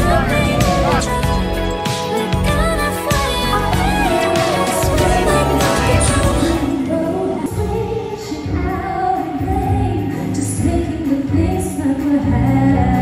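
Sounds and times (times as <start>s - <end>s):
instrumental accompaniment: 0.0s - 9.2s
woman singing into a microphone: 0.0s - 13.0s.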